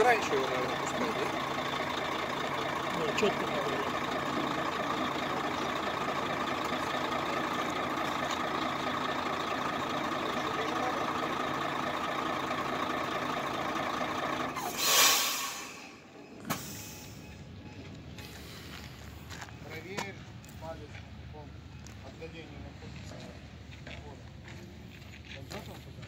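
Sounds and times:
diesel truck engine idling: 0:00.0 - 0:22.8
air brake hiss: 0:14.6 - 0:17.3.

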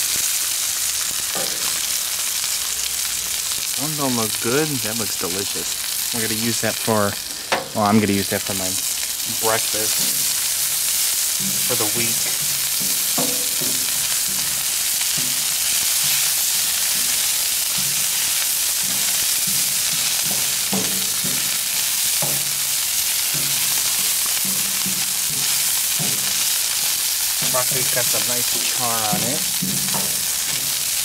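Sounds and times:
vegetables sizzling on griddle: 0:00.0 - 0:31.0
tongs scraping on steel: 0:09.4 - 0:18.2, 0:18.8 - 0:31.0.

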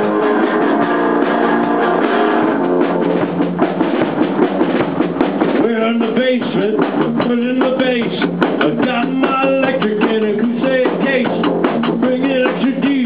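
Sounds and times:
electric guitar riff: 0:00.0 - 0:13.0
rock drum beat: 0:00.0 - 0:13.0.

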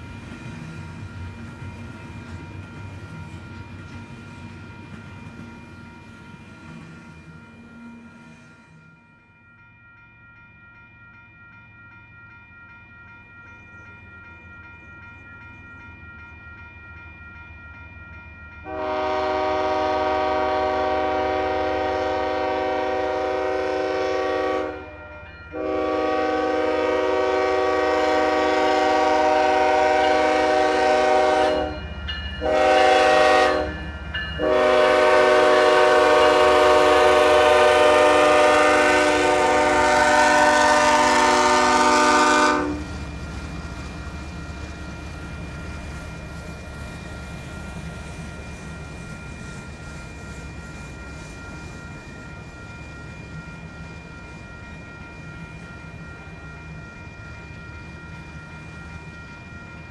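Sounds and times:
train air horn blasts: 0:18.7 - 0:31.8, 0:32.4 - 0:33.8, 0:34.4 - 0:42.9.

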